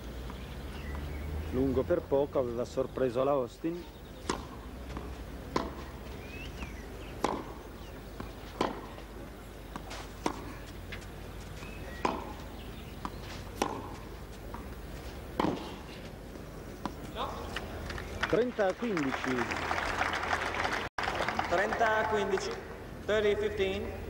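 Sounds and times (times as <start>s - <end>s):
racket striking tennis ball: 4.2s - 16.1s
crowd background: 16.3s - 24.0s.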